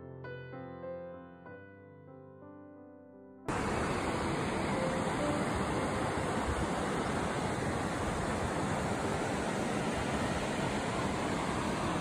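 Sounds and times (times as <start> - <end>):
river rushing over rapids: 3.5 - 12.0.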